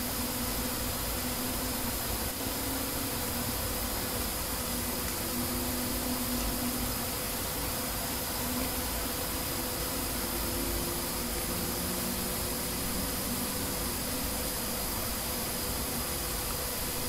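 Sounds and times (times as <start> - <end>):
faint hum tones: 0.0 - 17.0
steady hiss: 0.0 - 17.0.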